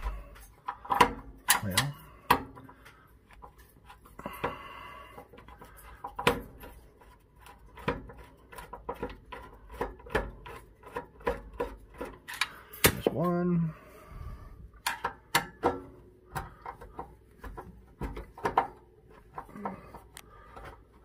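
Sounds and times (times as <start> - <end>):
screwdriver clicking and scraping metal: 5.3 - 13.0.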